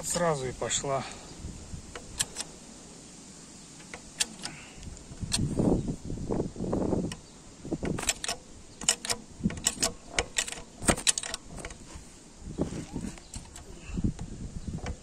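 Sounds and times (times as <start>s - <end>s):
metallic clicks and clinks: 7.8s - 11.8s.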